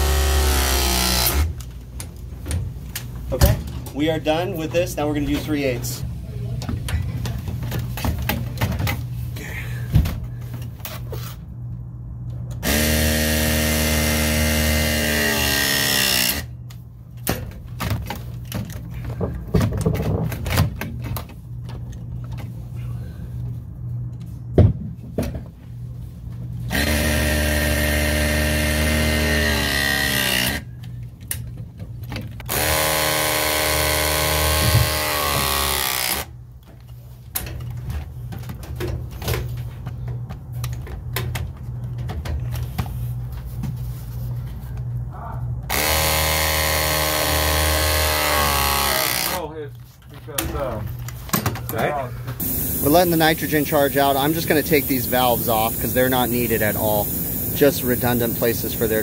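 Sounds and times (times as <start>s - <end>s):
press tool motor crimping: 12.6s - 16.5s, 26.7s - 30.6s, 32.5s - 36.3s, 45.7s - 49.4s.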